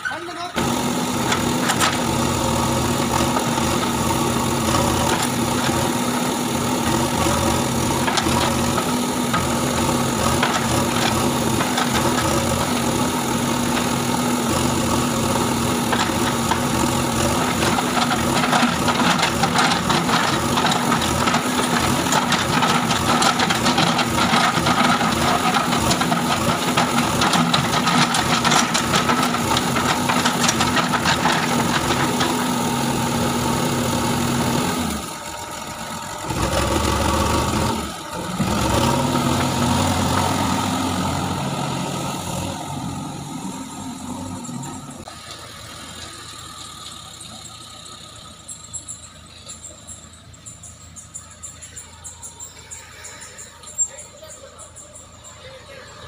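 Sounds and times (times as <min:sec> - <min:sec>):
diesel engine running under load: 0:00.0 - 0:56.0.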